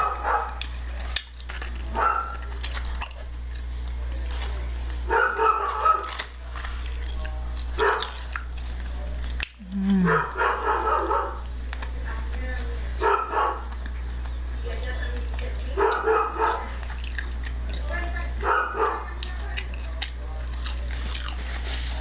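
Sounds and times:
dog barking: 0.0s - 0.6s, 1.9s - 2.6s, 5.1s - 6.2s, 7.8s - 8.2s, 10.1s - 11.5s, 13.0s - 13.7s, 15.7s - 16.8s, 18.4s - 19.2s
steady low hum: 0.0s - 22.0s.

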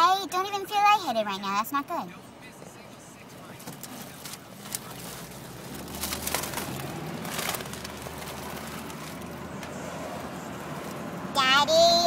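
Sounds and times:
foil balloon crinkling: 3.6s - 9.7s.

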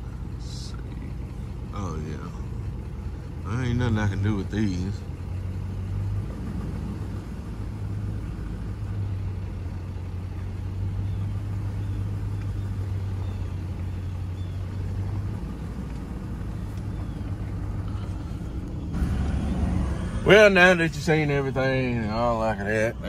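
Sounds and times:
engine hum inside vehicle: 0.0s - 23.0s
road rumble: 0.0s - 23.0s.

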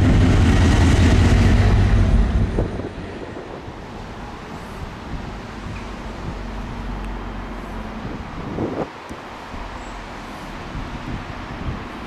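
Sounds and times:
wind noise on microphone: 0.0s - 9.8s, 10.4s - 12.0s
distant freight train rumble: 0.0s - 12.0s.

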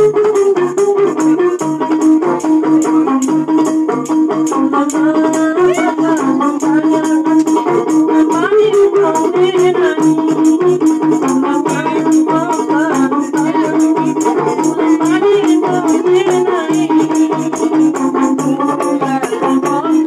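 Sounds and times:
frame drums with jingles: 0.0s - 20.0s
plucked lute melody: 0.0s - 20.0s.

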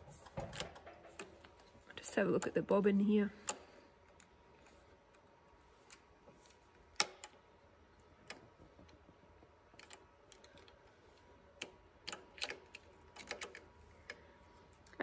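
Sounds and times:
metal clicks of sewing machine bobbin: 11.6s - 14.3s.

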